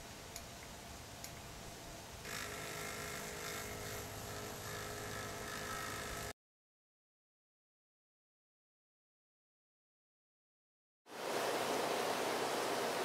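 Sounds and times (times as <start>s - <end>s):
lens motor whine: 2.2s - 6.3s.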